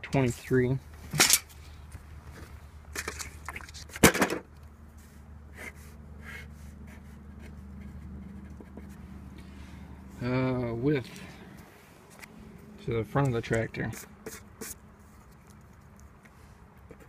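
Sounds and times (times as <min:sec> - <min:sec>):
pencil writing on paper: 0:05.5 - 0:09.0, 0:13.9 - 0:15.3.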